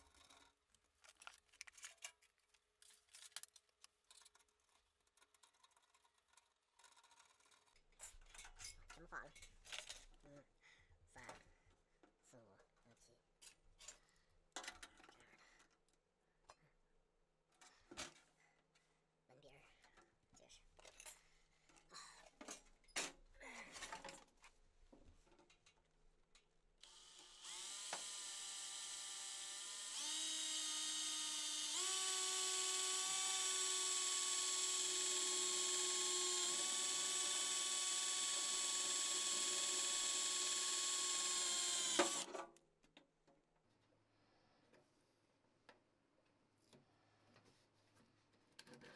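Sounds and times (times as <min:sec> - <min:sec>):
cordless drill whining: 0:26.8 - 0:42.4.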